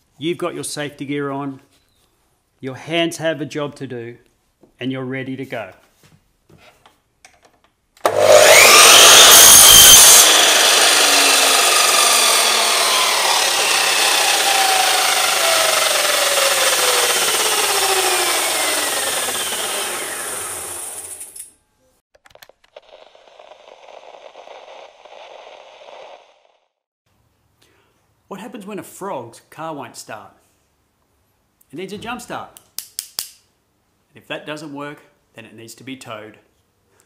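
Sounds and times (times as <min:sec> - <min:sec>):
mitre saw whining and cutting wood: 0:08.0 - 0:21.3.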